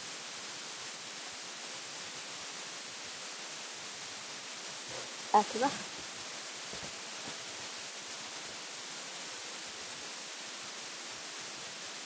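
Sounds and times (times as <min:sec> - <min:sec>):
microphone hiss: 0:00.0 - 0:12.0.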